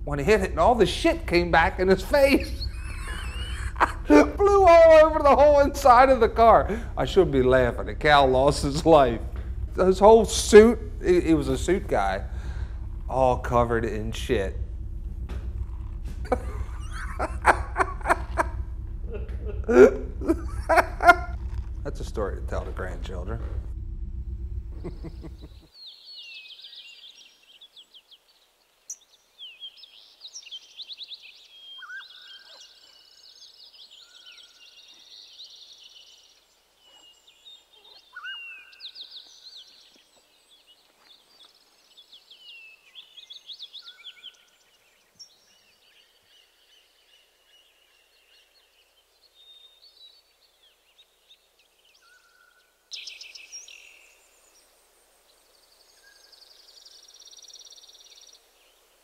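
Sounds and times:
small birds chirping: 0.0 - 23.7, 24.4 - 59.0
low whistled bird notes: 0.0 - 27.9, 28.9 - 39.9, 51.9 - 54.7.

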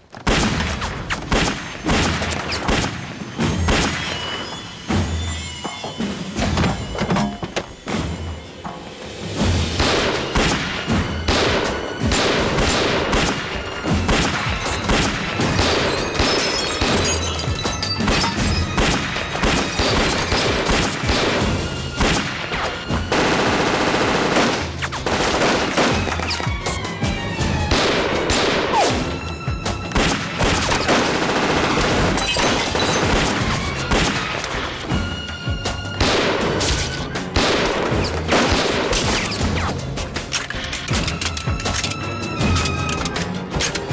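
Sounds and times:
gunshots: 0.0 - 4.5, 9.6 - 26.6, 27.6 - 29.2, 29.8 - 34.9, 36.0 - 39.8
tense music score: 0.0 - 43.9.

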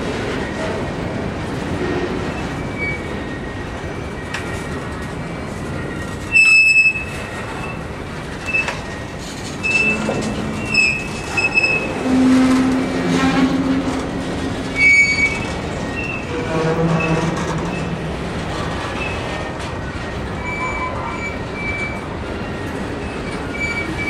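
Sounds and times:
train wheels rumbling on rail: 0.0 - 24.0
high-pitched metal squeals: 9.6 - 18.2, 20.4 - 24.0.

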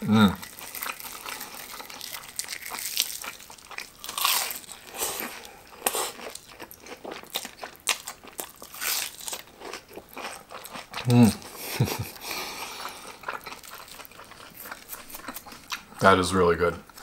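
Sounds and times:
chewing crispy fried food: 0.3 - 17.0
breaded crust crunching: 0.4 - 16.0.

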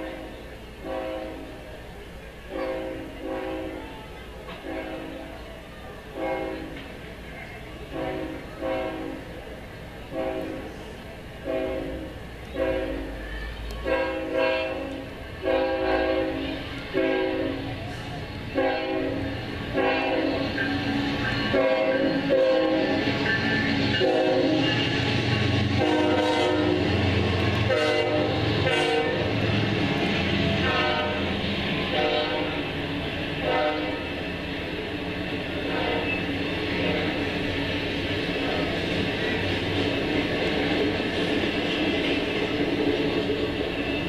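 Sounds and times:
locomotive air horn blasts: 0.0 - 1.6, 2.5 - 3.8, 4.6 - 5.3, 6.2 - 6.8, 7.9 - 9.3, 10.1 - 10.7, 11.4 - 13.2, 13.8 - 17.8, 18.5 - 20.6, 21.5 - 23.2, 23.9 - 24.9, 25.8 - 27.0, 27.6 - 29.4, 30.6 - 32.7, 33.4 - 34.2, 35.6 - 37.3
train rumble: 0.0 - 44.0.

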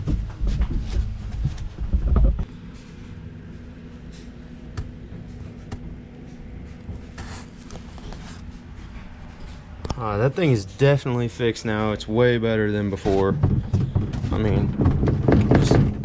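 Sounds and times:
plastic seat thumps and knocks: 0.0 - 2.5, 13.1 - 16.0
steady low hum: 0.0 - 16.0.

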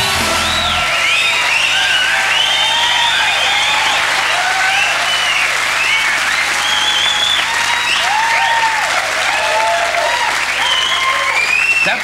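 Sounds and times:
people calling out and cheering: 0.0 - 5.4
audience applauding: 0.0 - 12.0.

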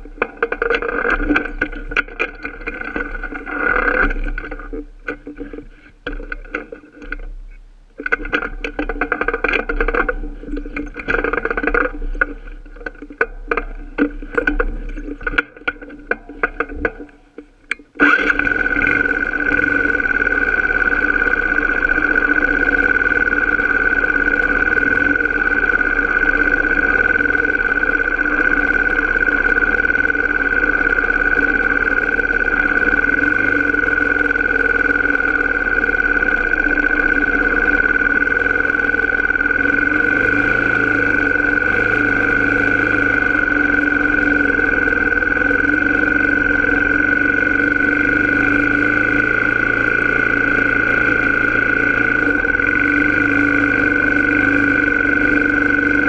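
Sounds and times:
off-road vehicle engine running: 0.0 - 56.0.

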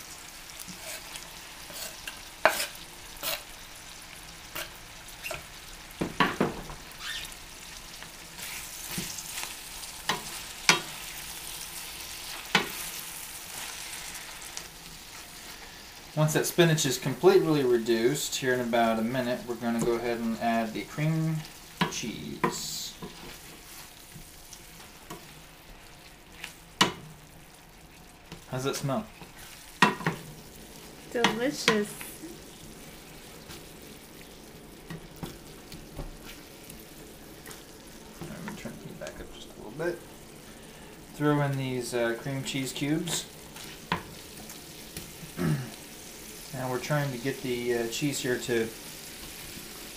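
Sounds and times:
vegetables sizzling in butter: 0.0 - 49.9
wooden spoon stirring: 0.6 - 3.5, 18.8 - 27.1, 27.8 - 45.4
wooden spoon knocking pan: 21.8 - 23.2, 26.8 - 27.1, 29.8 - 30.2
spoon knocking against pan: 29.8 - 30.2.

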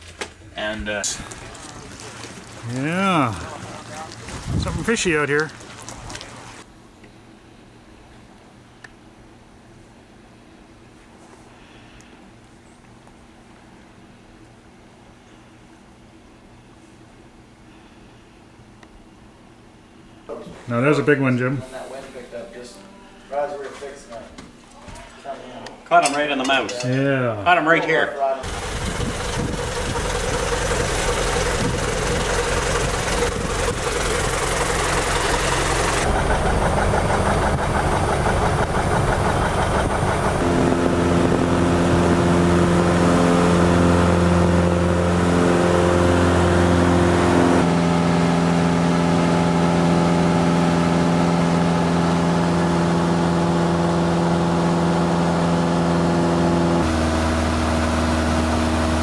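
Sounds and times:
droning plane engine: 28.4 - 59.0.

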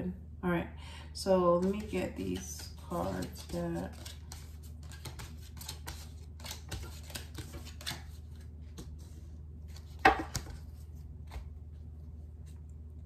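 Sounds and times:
low steady hum: 0.0 - 13.0
cards clicking and rustling: 1.6 - 9.0.

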